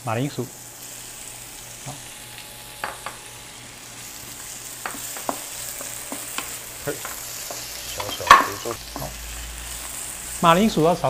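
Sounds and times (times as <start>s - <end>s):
vegetables sizzling in hot oil: 0.0s - 11.0s
wooden spatula scraping wok: 4.8s - 9.2s.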